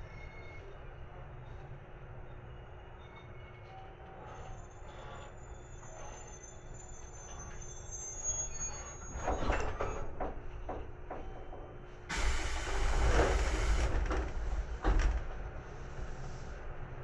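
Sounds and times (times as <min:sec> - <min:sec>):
train clunks: 0:09.1 - 0:16.6
compressed air hiss: 0:12.1 - 0:14.4
electric train slowing: 0:12.1 - 0:16.7.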